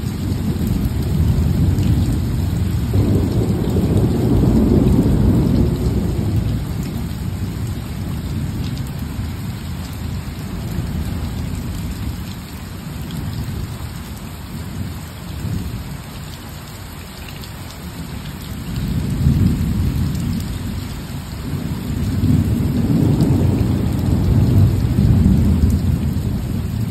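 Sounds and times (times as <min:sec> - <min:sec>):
thunder rumbling: 0:00.0 - 0:09.3, 0:18.7 - 0:26.9
rain falling: 0:00.0 - 0:26.9.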